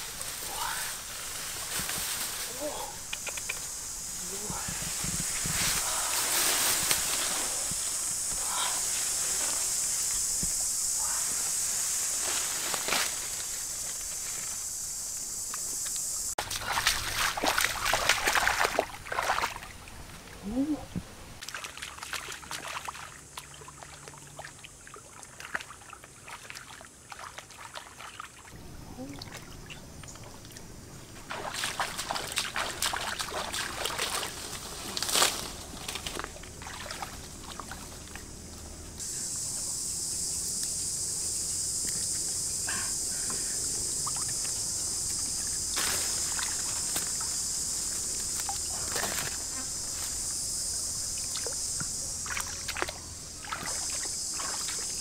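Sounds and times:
high insect buzz: 0.0s - 19.8s, 28.5s - 55.0s
person wading: 16.4s - 19.7s, 31.3s - 35.3s, 35.9s - 38.1s, 52.2s - 55.0s
water splashing and trickling: 16.4s - 20.8s, 21.4s - 38.3s, 44.0s - 49.4s, 51.1s - 55.0s.

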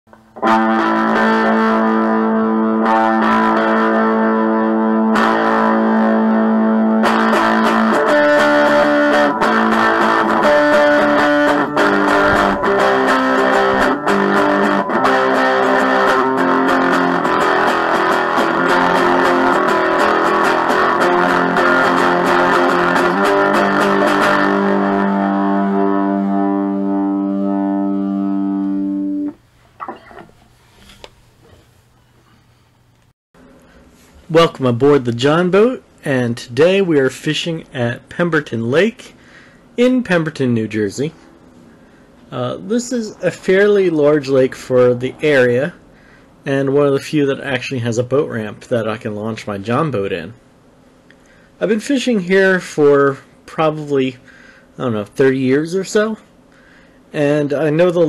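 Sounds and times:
distorted guitar music: 0.1s - 30.3s, 41.2s - 46.2s.

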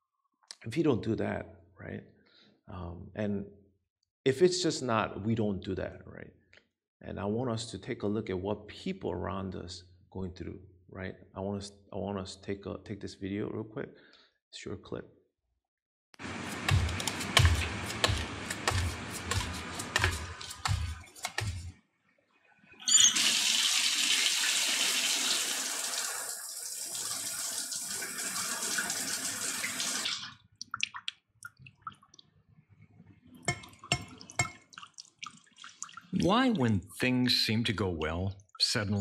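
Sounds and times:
shower spray: 16.2s - 21.7s
water drips: 24.2s - 32.4s, 33.4s - 36.9s, 37.9s - 39.0s.

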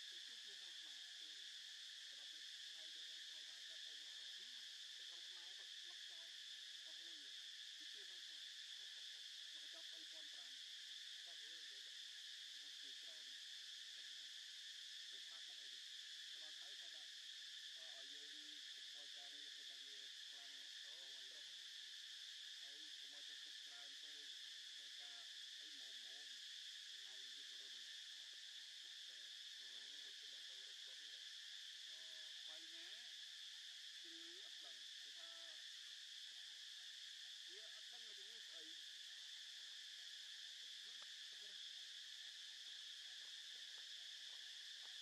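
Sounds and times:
insects droning: 0.0s - 45.0s
faint indistinct voices: 34.0s - 35.7s.

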